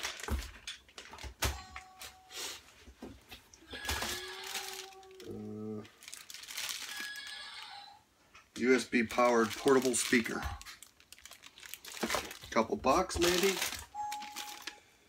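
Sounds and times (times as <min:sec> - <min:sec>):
plastic bags crinkling: 0:00.0 - 0:01.4, 0:03.7 - 0:07.9, 0:08.6 - 0:14.8.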